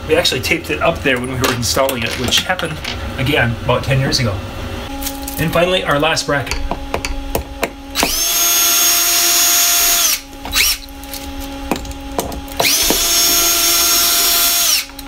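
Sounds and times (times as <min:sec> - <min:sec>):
cordless drill motor whining: 0:08.0 - 0:11.2, 0:12.1 - 0:15.0.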